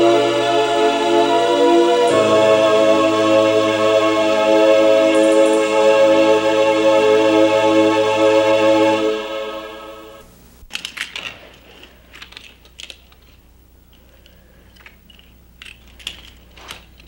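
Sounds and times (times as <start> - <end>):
held chord of music: 0.0 - 10.2
toy cars clicking: 10.7 - 17.0.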